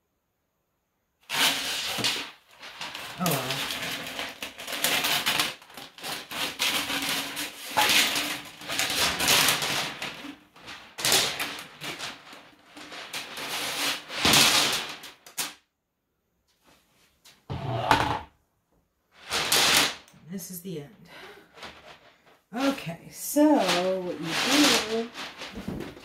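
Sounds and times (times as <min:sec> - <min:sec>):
steel cable scraping and rattling: 0:01.2 - 0:15.4, 0:21.5 - 0:26.0.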